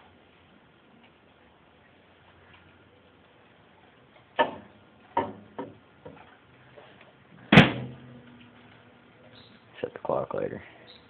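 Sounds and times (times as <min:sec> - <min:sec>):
knocks and clunks of handling: 0:04.4 - 0:06.3.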